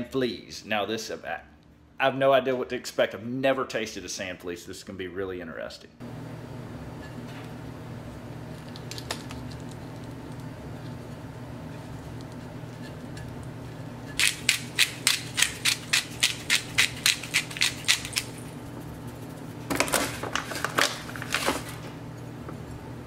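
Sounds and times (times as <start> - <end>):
pepper mill grinding clicks: 14.2 - 18.5.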